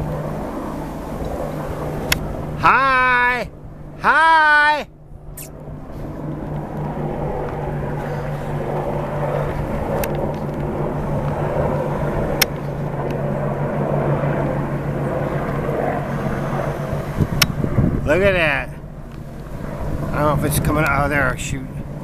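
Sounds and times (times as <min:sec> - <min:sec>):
distant helicopters droning: 0:00.0 - 0:22.0.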